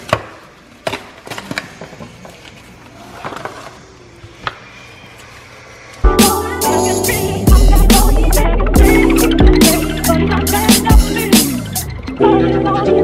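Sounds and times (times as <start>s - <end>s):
loud music with a beat: 6.0s - 13.0s.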